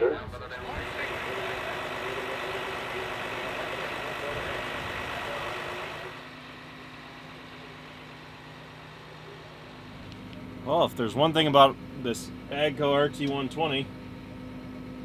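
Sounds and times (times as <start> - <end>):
crowd din: 0.0 - 6.2
muffled engine idling hum: 0.0 - 15.0.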